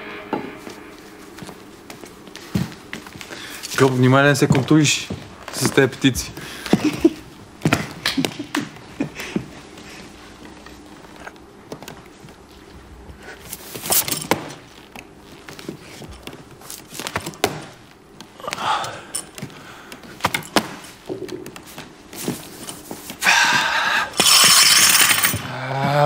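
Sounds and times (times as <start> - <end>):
gym weights clinking: 24.2 - 25.5.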